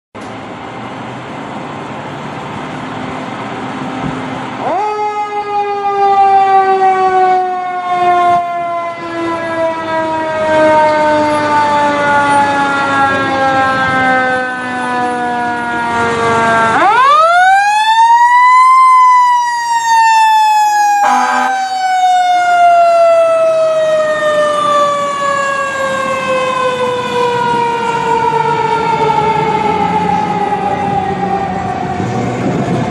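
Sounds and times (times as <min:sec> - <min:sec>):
truck engine: 0:00.2 - 0:04.8, 0:21.0 - 0:32.9
fire engine siren: 0:02.1 - 0:32.9.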